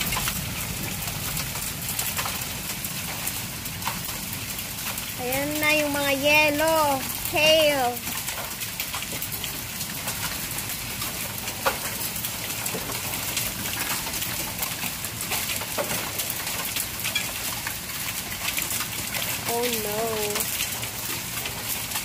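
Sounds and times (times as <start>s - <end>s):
rain and hail on concrete: 0.0s - 22.0s.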